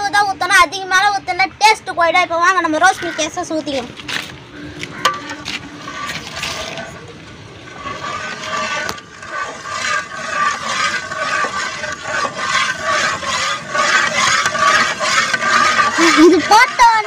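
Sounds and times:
ladle scraping metal pan: 4.9s - 17.0s.

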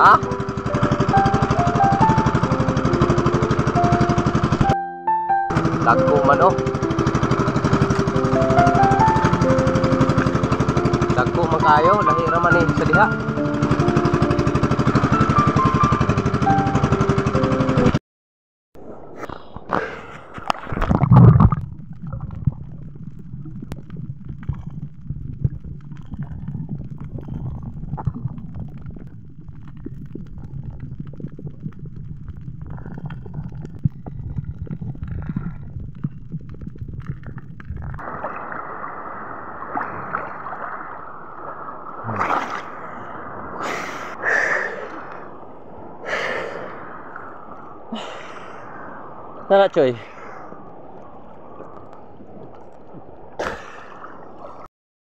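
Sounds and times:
steady water noise: 0.0s - 4.8s, 5.5s - 18.0s, 18.8s - 54.7s
small boat engine: 0.0s - 18.0s
water splashes: 5.5s - 15.8s, 18.8s - 54.7s
muffled underwater rumble: 5.5s - 16.3s, 18.8s - 54.7s.

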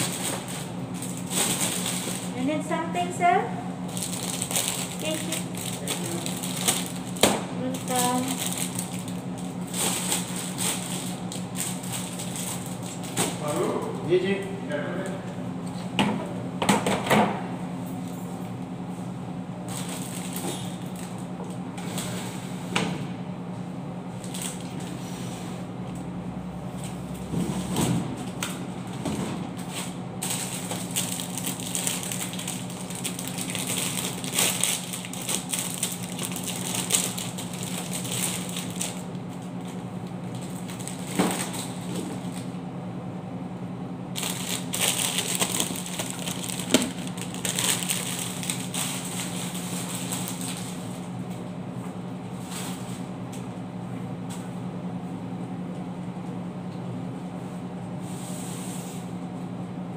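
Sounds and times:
plastic packs crinkling and rustling: 0.0s - 2.5s, 3.8s - 13.6s, 19.7s - 21.2s, 24.2s - 24.8s, 29.6s - 42.5s, 44.1s - 51.1s
steady low hum: 0.0s - 59.9s.

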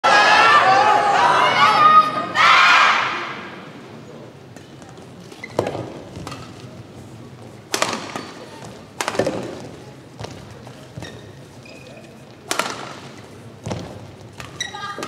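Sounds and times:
rackets hitting shuttlecock: 5.5s - 6.7s, 7.7s - 11.2s, 12.4s - 15.0s.

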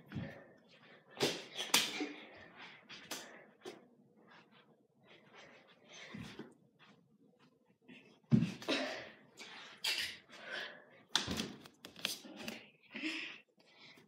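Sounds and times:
breathing: 5.0s - 6.5s, 10.3s - 11.1s, 12.9s - 14.0s.

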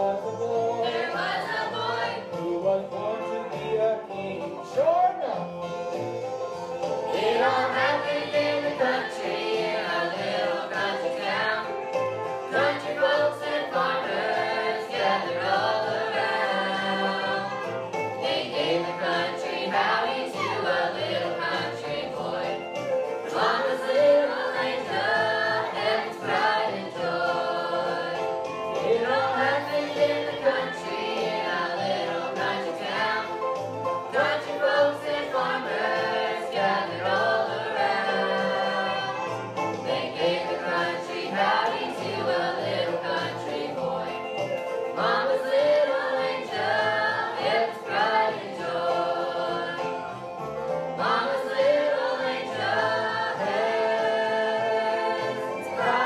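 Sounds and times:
young voices singing together: 0.0s - 4.3s, 7.1s - 11.9s, 12.5s - 33.4s, 34.1s - 50.2s, 51.0s - 56.0s
instrumental accompaniment: 0.0s - 56.0s.

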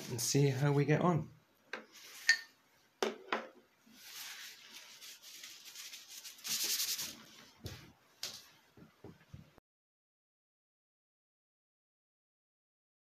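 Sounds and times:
scuffing and rubbing on wood: 4.0s - 9.5s.

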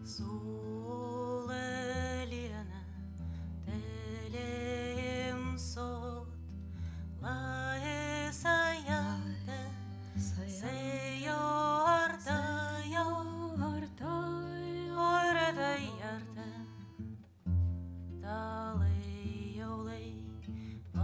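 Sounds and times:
woman singing with vibrato: 0.0s - 2.8s, 3.7s - 6.4s, 7.2s - 16.9s, 18.2s - 21.0s
acoustic guitar: 0.0s - 21.0s.

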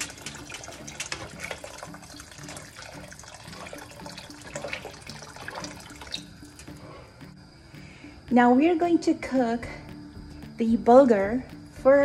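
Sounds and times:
boiling water pouring into soup: 0.0s - 6.8s.

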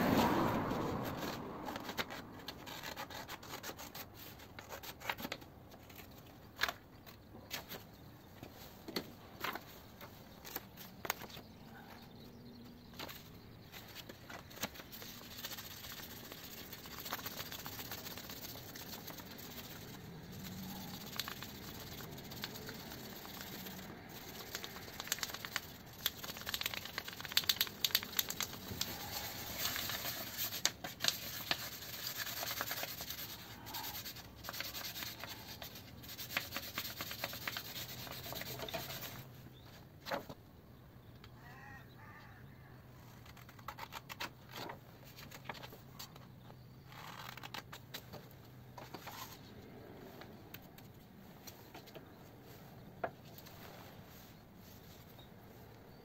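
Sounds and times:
sandpaper rubbing on wood: 14.6s - 39.3s.

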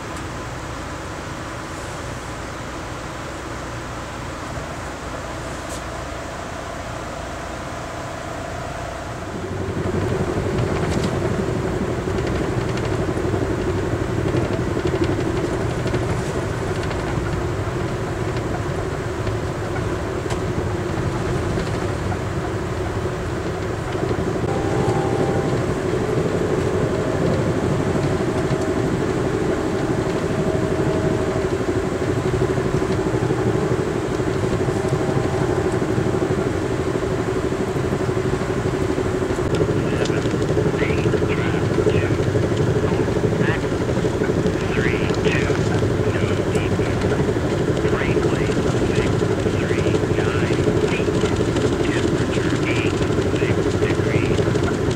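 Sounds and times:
train coach rumble: 0.0s - 54.9s
faint higher tones: 24.4s - 38.8s.

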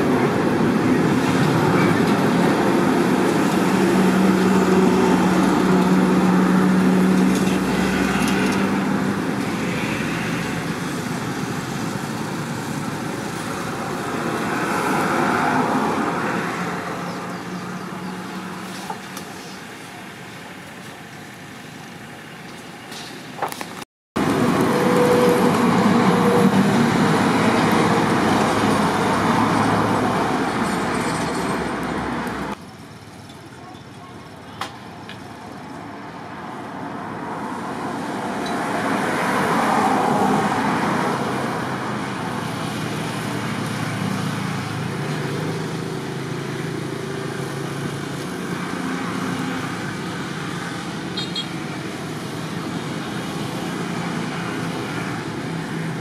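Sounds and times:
vehicle passing: 0.0s - 18.7s
vehicle and road noise: 0.0s - 56.0s.

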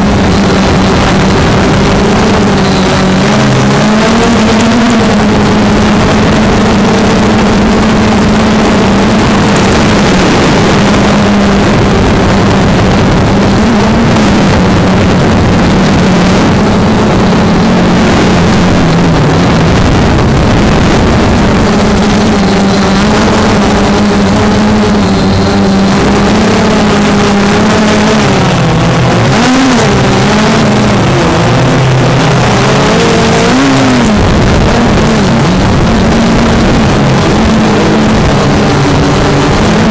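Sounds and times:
drone motors whining: 0.0s - 39.9s.

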